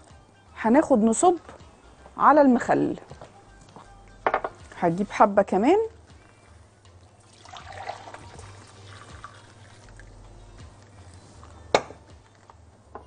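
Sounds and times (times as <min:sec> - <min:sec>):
liquid pouring into glass jar: 0:07.2 - 0:10.2.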